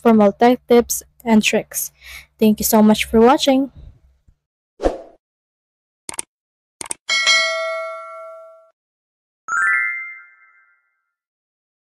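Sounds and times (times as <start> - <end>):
short clicks: 6.1 - 7.0
bell-like ding: 7.1 - 8.8.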